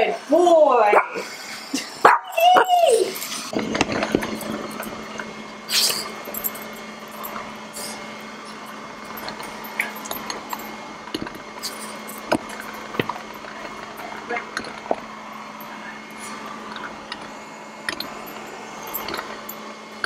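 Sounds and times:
dog whining: 1.8s - 3.4s
robot vacuum humming: 3.0s - 20.0s
vacuum scraping tile floor: 3.2s - 20.0s.

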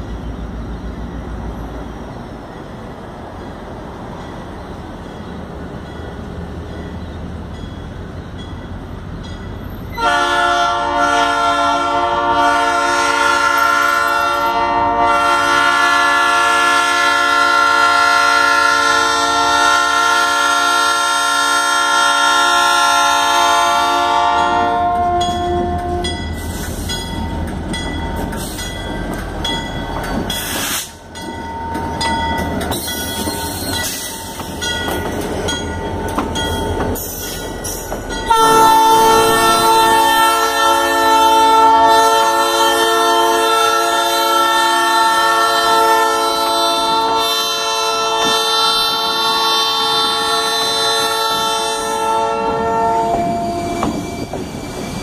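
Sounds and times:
train wheels on rails: 0.0s - 55.0s
locomotive horn: 9.9s - 26.2s, 38.3s - 53.8s.

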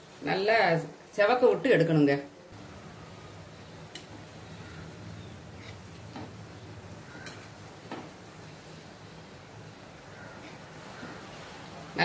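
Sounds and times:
oil sizzling faintly: 0.0s - 12.0s.

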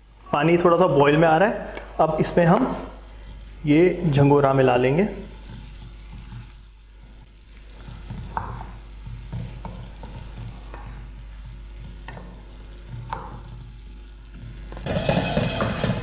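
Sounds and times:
spatula knocking against pan: 14.8s - 16.0s
spatula scraping a steel pan: 14.8s - 16.0s.

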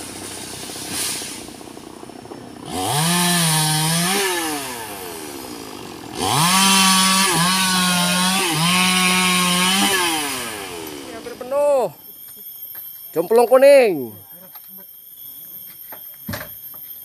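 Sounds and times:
chainsaw revving: 0.0s - 11.6s.

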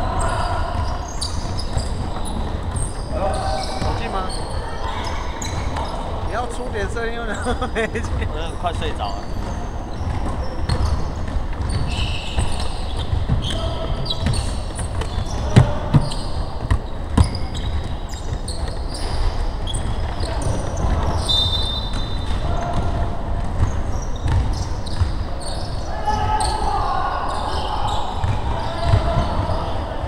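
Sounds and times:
sneakers squeaking: 0.0s - 30.0s.

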